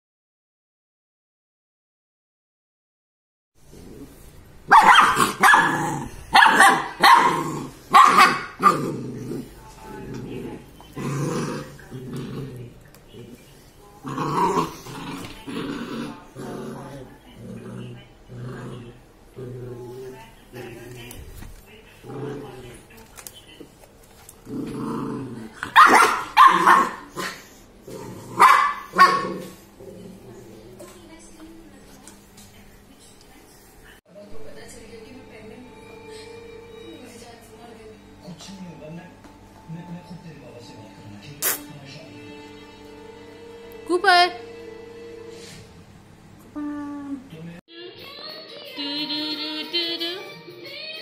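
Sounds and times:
puppy growling: 3.6 - 23.0, 24.2 - 31.3
puppy barking: 4.7 - 8.8, 25.6 - 27.4, 28.4 - 29.5.

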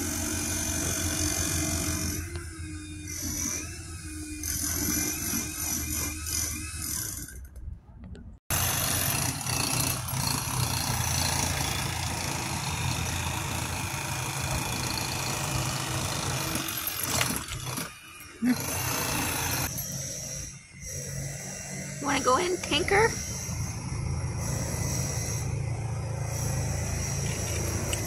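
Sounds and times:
construction machinery engine rumble: 22.0 - 28.0.

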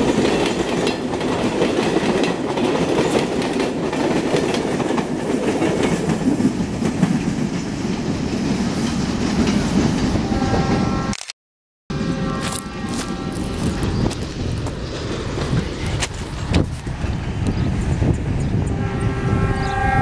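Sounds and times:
train wheels clicking over rail joints: 0.0 - 10.1, 13.6 - 17.5
train rumble: 0.0 - 11.0, 11.9 - 20.0.

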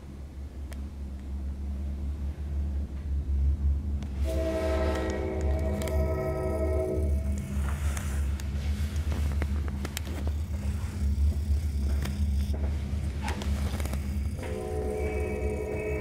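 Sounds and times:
freight train rumbling: 0.0 - 16.0
train horn blasts: 4.2 - 8.0, 14.2 - 16.0.

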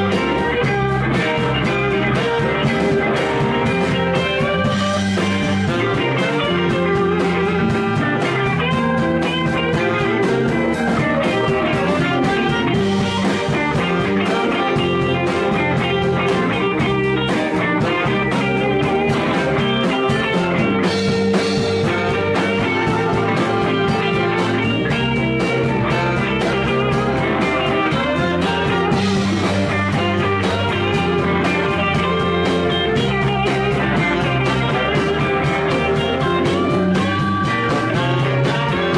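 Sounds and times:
blues-rock band playing: 0.0 - 38.9
drum kit beat: 0.0 - 38.9
electric guitars: 0.0 - 38.9.

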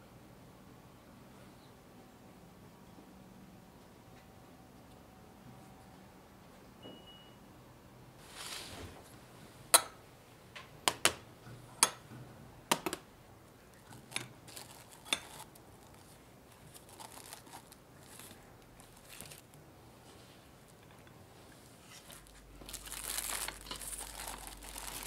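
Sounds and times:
plastic cling wrap crinkling: 13.7 - 19.6, 21.8 - 25.0.

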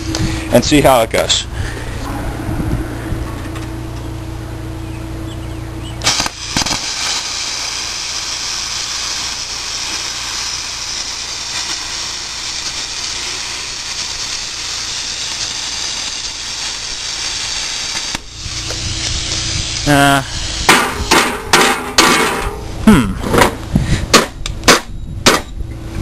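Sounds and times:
plasma arc cracks: 6.0 - 22.7
plasma cutter hissing: 6.0 - 22.7.

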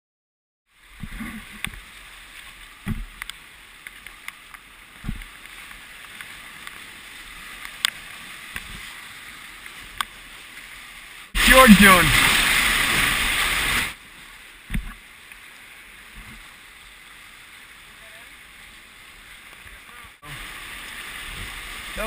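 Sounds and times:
river water rushing: 0.7 - 22.0
low thumps: 2.8 - 3.2, 5.0 - 5.3, 14.7 - 15.0.

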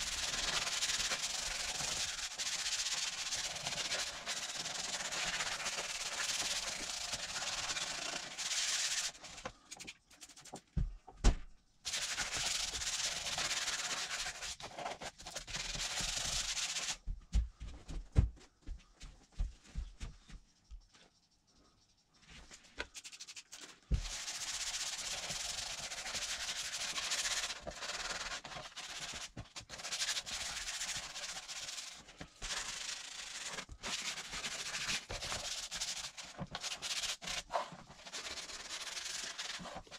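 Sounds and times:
sanding pad scrubbing plastic: 0.0 - 10.4, 11.9 - 17.0, 22.9 - 39.9.

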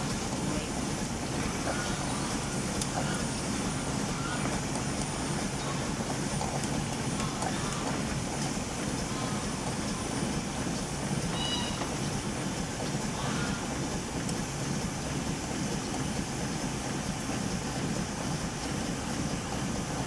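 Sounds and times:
boat moving through water: 0.0 - 20.0
steam engine running: 0.0 - 20.0.

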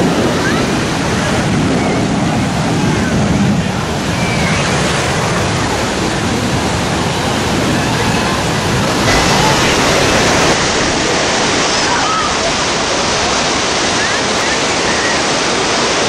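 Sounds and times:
jet engine roar: 0.0 - 16.0.

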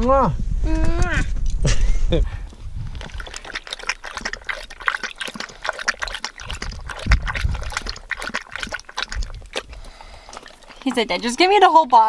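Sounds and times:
dog lapping water: 2.5 - 12.0.

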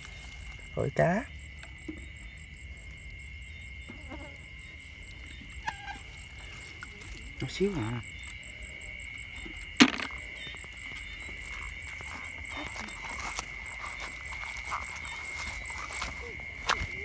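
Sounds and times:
insects trilling: 0.0 - 17.0
rapidly pulsing insect chirp: 0.0 - 17.0.

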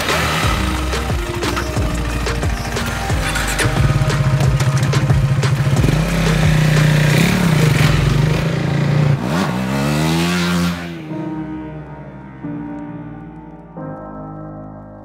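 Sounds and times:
motorcycle engine accelerating: 0.0 - 11.1.

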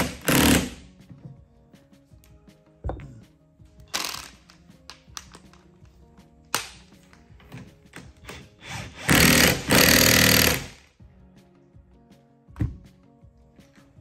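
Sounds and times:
impact wrench hammering: 8.3 - 10.8.

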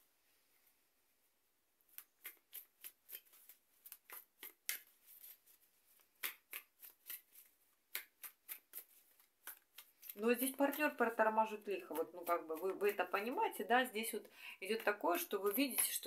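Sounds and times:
cards being shuffled: 1.9 - 13.6.

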